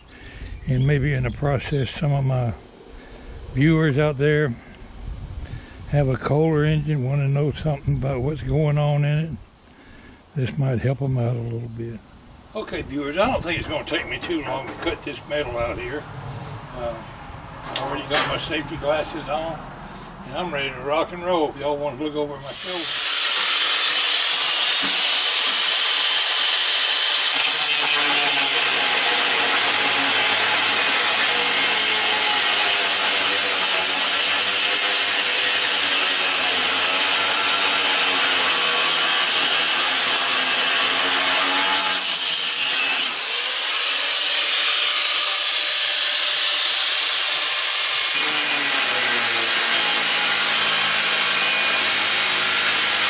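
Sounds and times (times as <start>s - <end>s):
angle grinder cutting metal: 20.4s - 53.0s.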